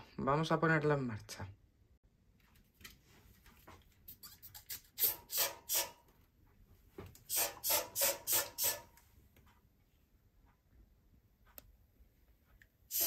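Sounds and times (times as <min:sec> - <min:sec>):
spray bottle squirting: 0:04.1 - 0:06.0, 0:07.3 - 0:08.9.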